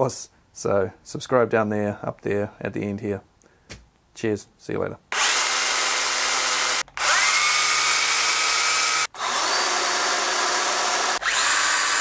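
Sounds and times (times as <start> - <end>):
cordless chainsaw whirring: 5.1 - 12.0
motor spinning up whine: 6.5 - 12.0.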